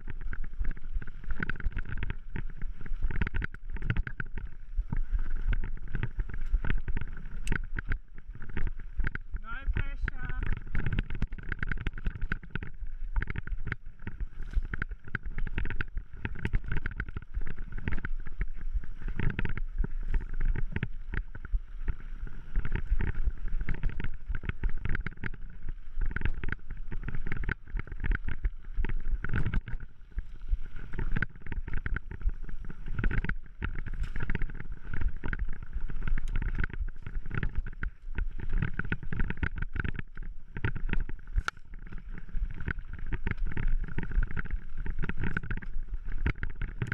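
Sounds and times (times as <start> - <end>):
bike tyres running on dirt: 0.0 - 46.9.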